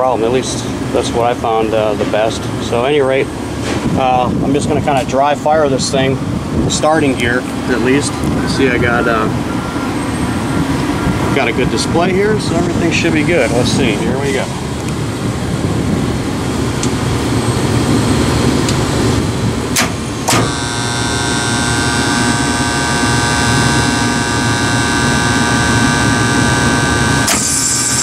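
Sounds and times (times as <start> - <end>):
steady low rumble: 0.0 - 27.4
contactor buzzing: 7.4 - 28.0.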